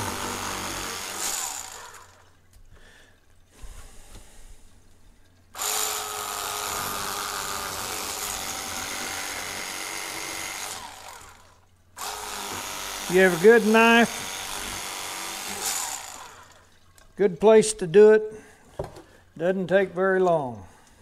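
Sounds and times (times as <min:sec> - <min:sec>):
electric fillet knife buzzing: 0:00.0 - 0:02.3, 0:05.6 - 0:16.7.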